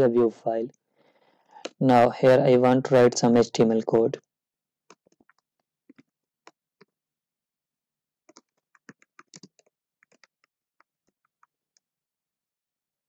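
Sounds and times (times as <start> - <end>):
computer keyboard typing: 8.3 - 10.5.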